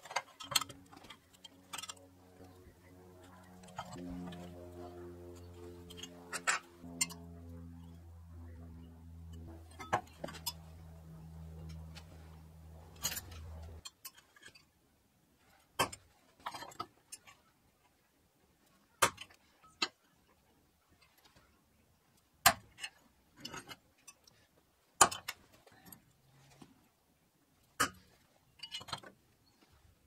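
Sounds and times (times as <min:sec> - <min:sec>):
low steady hum: 0:00.0 - 0:13.9.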